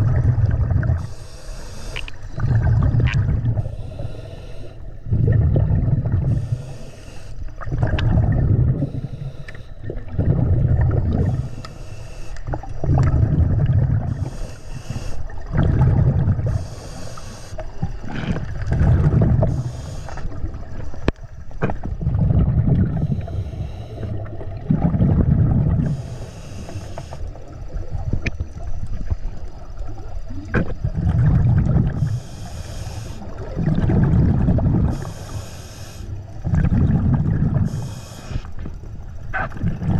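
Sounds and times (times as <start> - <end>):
exhaled bubbles rumbling: 0.0 - 11.8, 12.4 - 39.9
regulator hissing inhale: 0.9 - 2.4, 3.5 - 5.2, 6.2 - 7.7, 8.7 - 10.0, 11.2 - 12.7, 14.0 - 15.5, 16.3 - 18.0, 19.4 - 20.7, 22.9 - 24.3, 25.8 - 27.6, 31.9 - 33.5, 34.7 - 36.4, 37.4 - 39.1.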